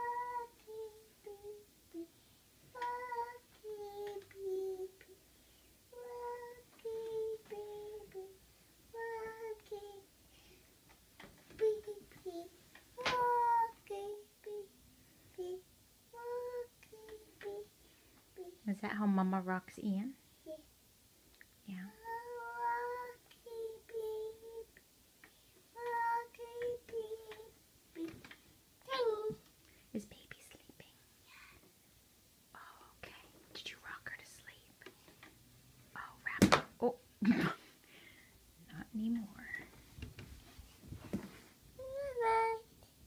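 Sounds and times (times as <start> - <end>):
child singing a lullaby: 0.0 - 10.5, 11.2 - 18.7, 20.3 - 20.7, 21.8 - 29.5, 41.8 - 43.0.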